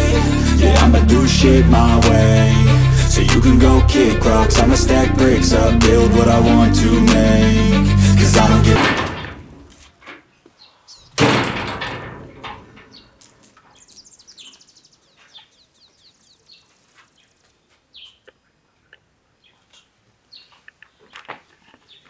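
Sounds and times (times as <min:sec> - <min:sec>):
loud sudden crash: 0:08.0 - 0:09.7, 0:11.2 - 0:12.8
small birds chirping: 0:10.3 - 0:11.2, 0:12.9 - 0:22.0.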